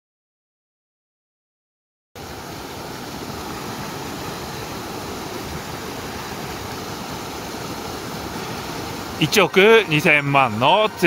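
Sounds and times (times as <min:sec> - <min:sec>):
stream rushing over rocks: 0:02.2 - 0:11.0.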